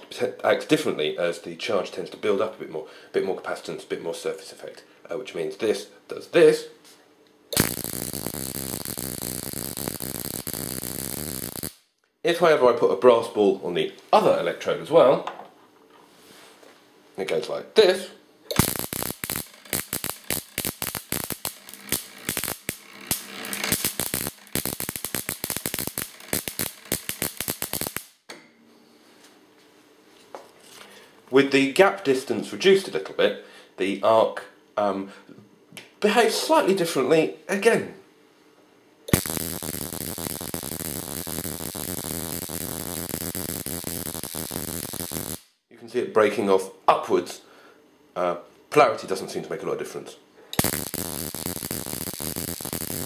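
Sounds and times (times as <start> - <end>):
high-voltage sparks crackling: 7.5 - 11.9, 18.5 - 28.2, 39.1 - 45.6, 50.6 - 53.0.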